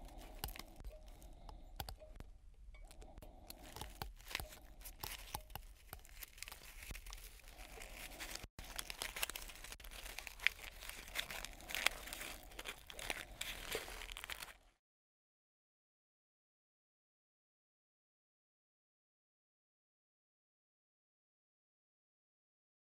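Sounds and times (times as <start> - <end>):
foil gum pack crinkling: 0.0 - 1.6, 3.3 - 14.8.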